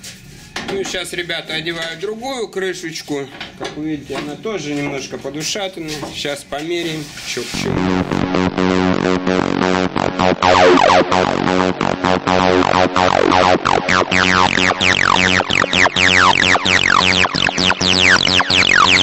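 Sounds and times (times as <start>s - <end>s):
electronic music with steady beat: 7.6s - 19.0s
falling synth glides: 7.6s - 19.0s.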